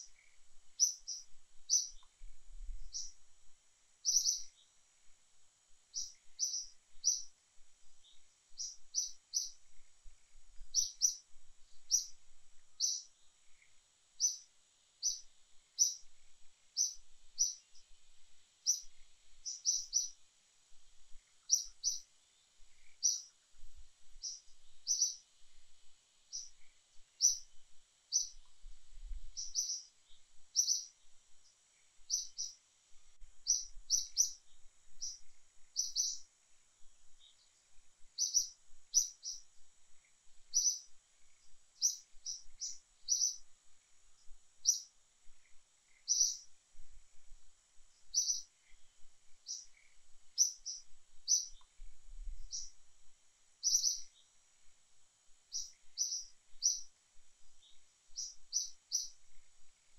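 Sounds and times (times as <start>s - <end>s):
bird chirping: 0.0s - 2.2s, 2.8s - 3.2s, 4.0s - 4.8s, 5.9s - 7.4s, 8.0s - 18.0s, 18.6s - 20.2s, 21.1s - 23.4s, 24.2s - 25.3s, 26.3s - 28.6s, 29.3s - 32.6s, 33.4s - 36.3s, 37.1s - 43.9s, 44.6s - 46.6s, 48.0s - 51.8s, 52.4s - 52.8s, 53.6s - 54.4s, 55.5s - 59.9s.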